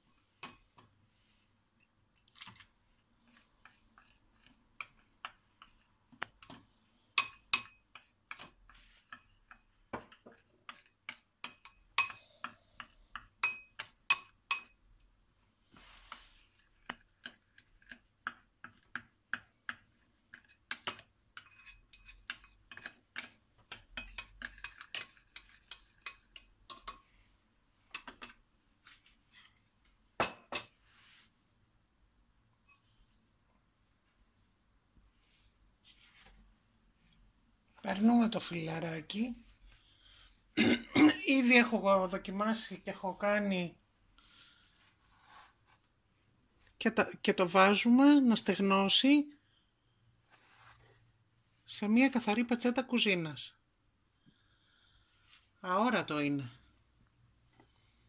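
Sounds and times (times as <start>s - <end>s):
spoon clinking against glass bowl: 7.2s - 7.8s, 11.5s - 12.6s, 13.4s - 14.8s, 24.0s - 27.1s.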